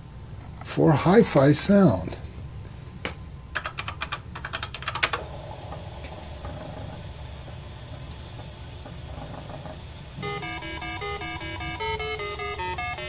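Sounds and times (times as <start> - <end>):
steady low hum: 0.0 - 13.0
keyboard keystrokes: 3.6 - 5.2.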